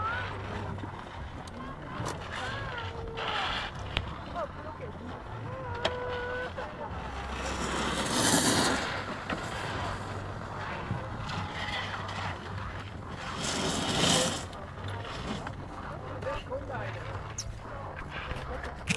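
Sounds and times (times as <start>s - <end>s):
snowboard edges scraping snow: 6.0s - 16.3s.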